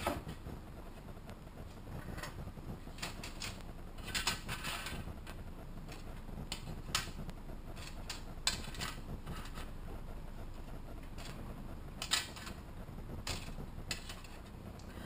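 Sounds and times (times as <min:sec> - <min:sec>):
plastic parts scraping on tray: 0:02.0 - 0:09.8, 0:11.0 - 0:12.6, 0:13.2 - 0:14.5.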